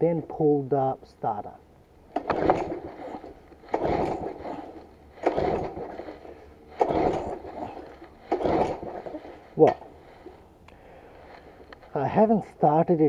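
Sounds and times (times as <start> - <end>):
mower engine turning over: 2.0 - 10.5
recoil starter cord pulls: 2.1 - 10.4.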